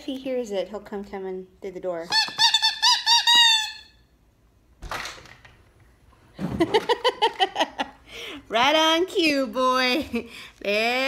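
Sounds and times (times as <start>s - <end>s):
dog toy squeaking: 2.1s - 4.0s.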